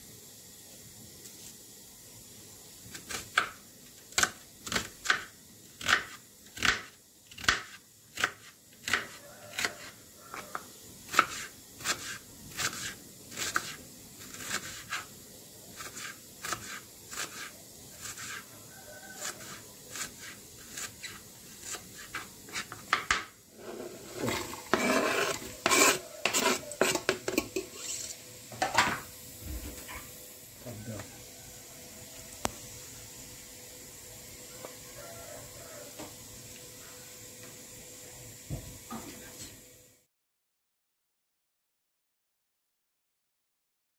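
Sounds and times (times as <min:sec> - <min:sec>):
knife chopping on plastic board: 0:03.0 - 0:10.5, 0:11.1 - 0:13.8
onion scraped into metal pot: 0:11.1 - 0:15.1, 0:15.8 - 0:18.5, 0:19.2 - 0:28.2.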